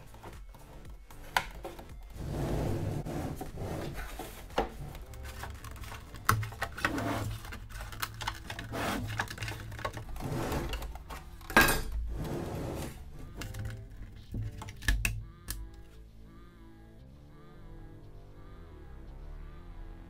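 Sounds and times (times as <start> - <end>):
hand tools clicking and scraping plastic: 0.0 - 2.3, 3.0 - 16.0.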